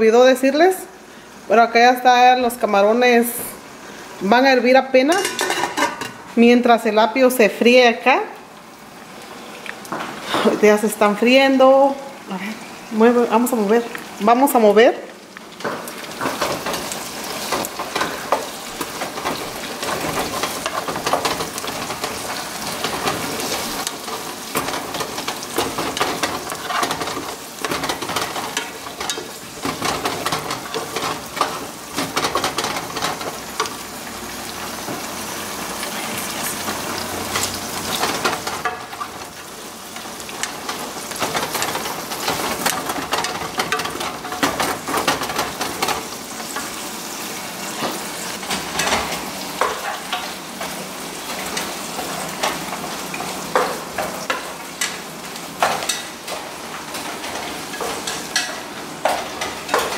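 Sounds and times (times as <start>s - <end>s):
celery sizzling in a frying pan: 0.0s - 59.9s
wooden spatula scraping a pan: 15.6s - 33.8s, 35.9s - 46.8s.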